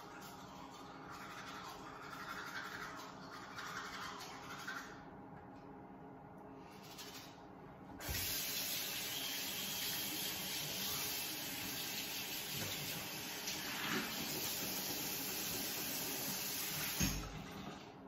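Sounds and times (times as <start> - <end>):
faucet running into sink: 8.0 - 17.9.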